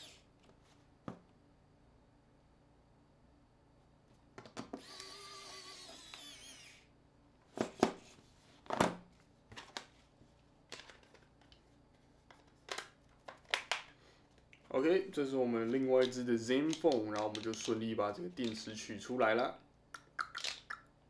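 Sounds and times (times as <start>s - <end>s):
electric screwdriver whirring: 4.8s - 6.9s.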